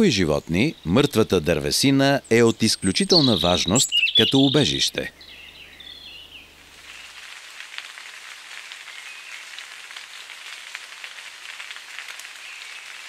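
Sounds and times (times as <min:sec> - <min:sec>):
rain falling on leaves: 0:05.8 - 0:13.0.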